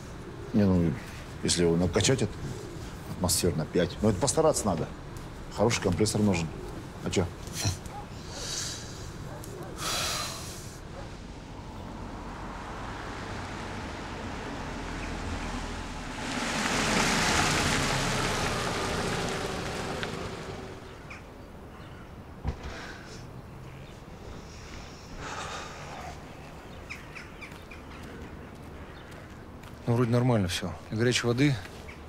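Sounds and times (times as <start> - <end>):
car engine and tyre noise: 10.8 - 21.4.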